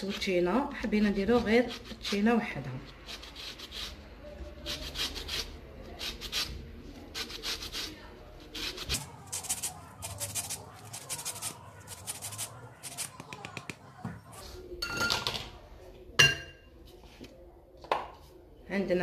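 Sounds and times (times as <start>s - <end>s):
orange peel scraping on grater: 1.2s - 4.0s, 4.6s - 6.5s, 7.1s - 13.1s.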